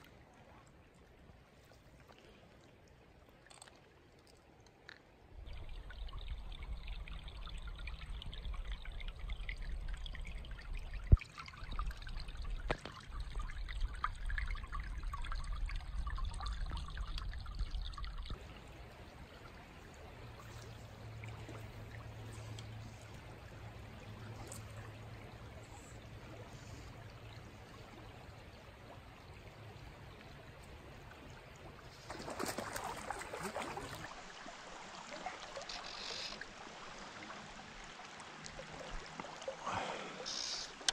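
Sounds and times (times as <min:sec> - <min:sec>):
creek water flowing: 0:00.0 - 0:40.9
fish splashing: 0:31.9 - 0:34.5.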